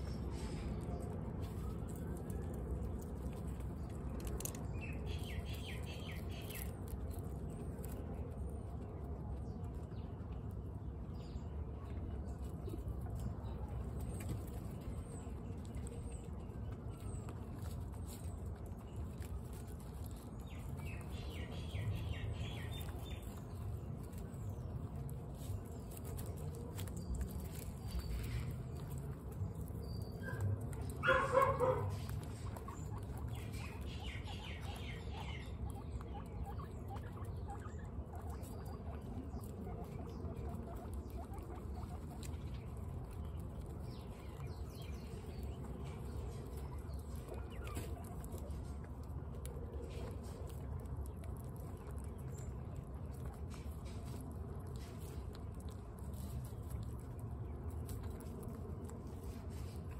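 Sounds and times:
guinea pigs crunching pellets: 0.0s - 59.9s
guinea pig call: 24.8s - 55.2s.

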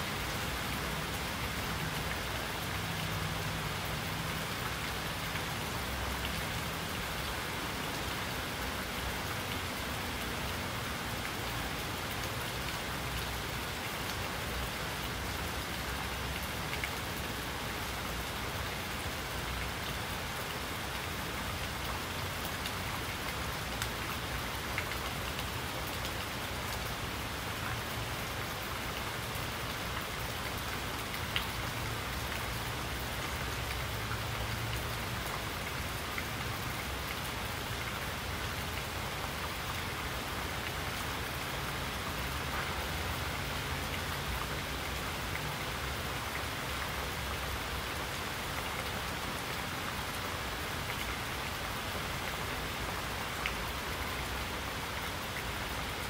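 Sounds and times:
rain drops ticking: 0.0s - 56.0s
steady rain hiss: 0.0s - 56.0s.

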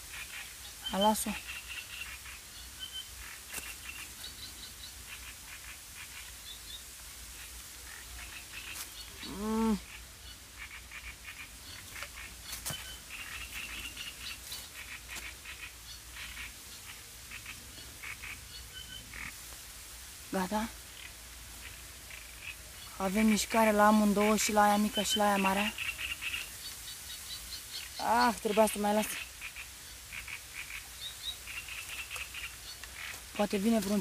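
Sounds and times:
small birds chirping: 0.0s - 19.5s, 20.3s - 34.0s.

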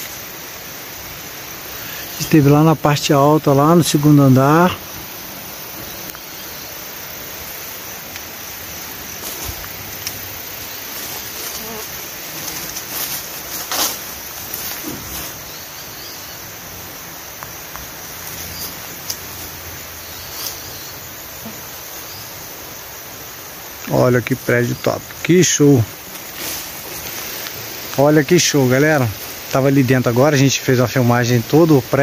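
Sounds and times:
insect chorus: 0.0s - 32.0s
knocks and rustles: 11.0s - 15.4s.

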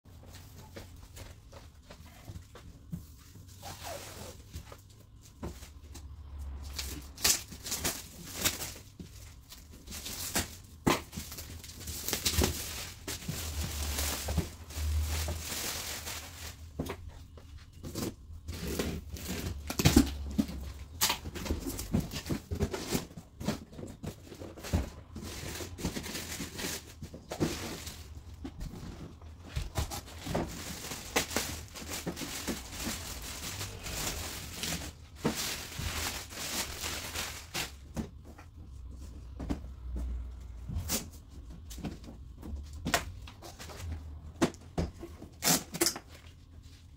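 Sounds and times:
plastic bag rustling: 0.1s - 38.2s
plastic film crinkling and tearing: 6.7s - 16.8s, 29.6s - 37.9s.

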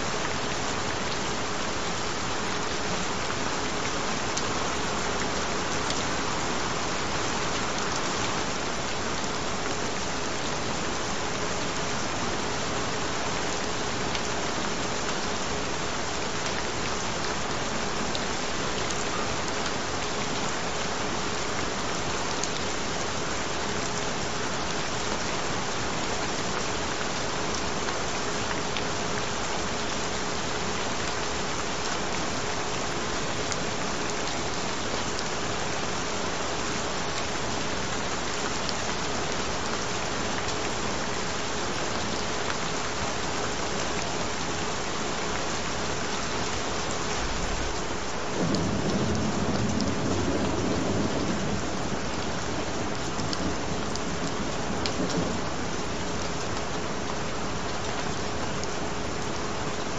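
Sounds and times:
steady rain: 0.0s - 59.9s
low rumble of thunder: 47.2s - 56.0s.

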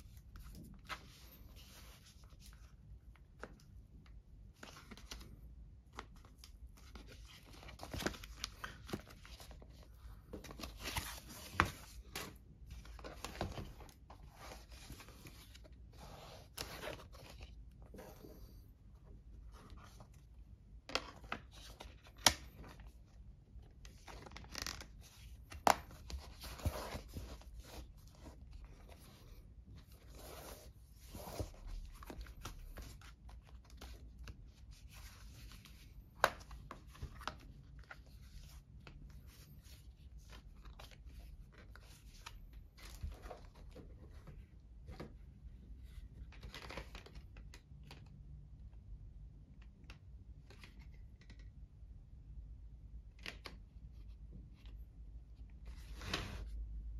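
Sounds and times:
scraping and rustling of tablet case: 23.9s - 33.1s.

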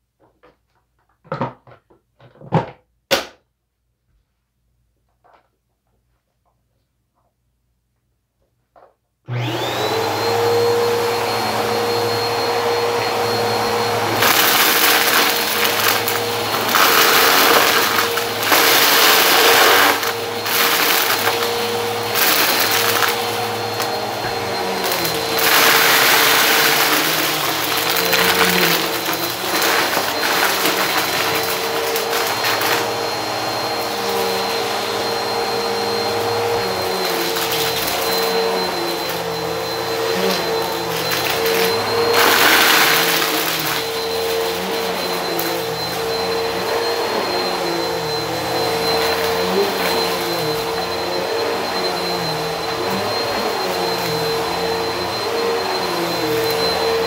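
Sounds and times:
vacuum cleaner whining: 9.3s - 57.0s
debris rattling into vacuum: 14.0s - 33.0s.

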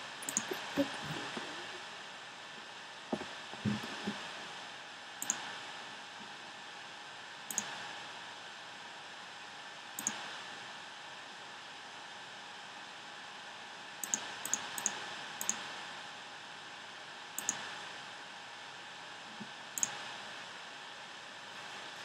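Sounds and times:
computer mouse clicks: 0.2s - 1.6s, 5.2s - 5.5s, 7.5s - 7.8s, 10.0s - 10.2s, 14.0s - 15.6s, 17.4s - 17.6s, 19.8s - 20.0s.

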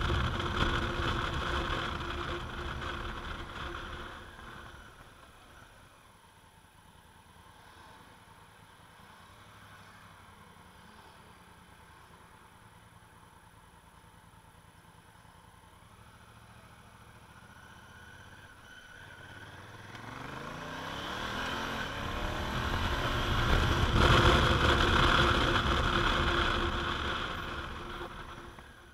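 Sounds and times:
motorcycle engine accelerating: 0.0s - 5.5s, 15.8s - 28.9s.

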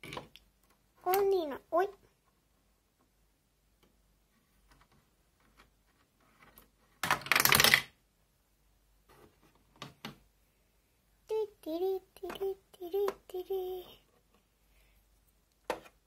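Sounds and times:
plastic pieces rattling clatter: 7.0s - 7.9s
plastic pieces clicking: 7.0s - 8.0s.

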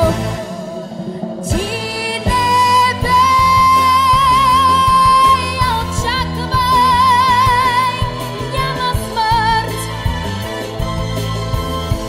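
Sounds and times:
instrumental backing track: 0.0s - 12.0s
girl singing into microphone: 1.5s - 9.9s.

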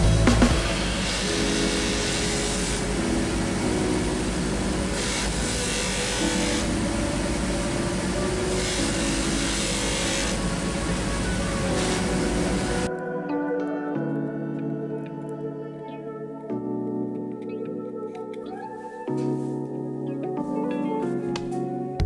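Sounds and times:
buffing wheel hiss: 0.6s - 12.9s
polishing motor hum: 0.9s - 12.9s.

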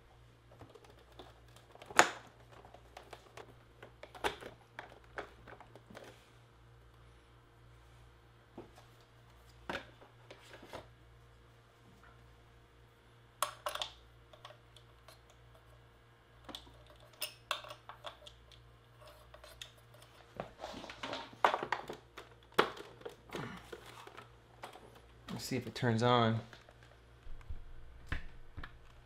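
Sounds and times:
plastic clicks and clatters: 0.5s - 6.1s.

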